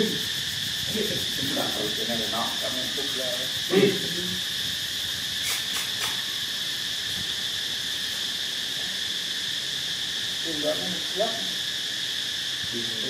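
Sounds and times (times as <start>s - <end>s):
insect chorus drone: 0.0s - 13.0s.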